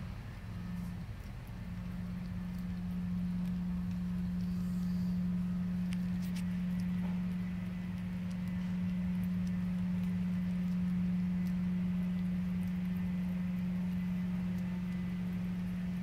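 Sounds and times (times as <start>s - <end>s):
low machine hum: 0.0s - 16.0s
squirrel gnawing nut clicks: 5.6s - 15.8s.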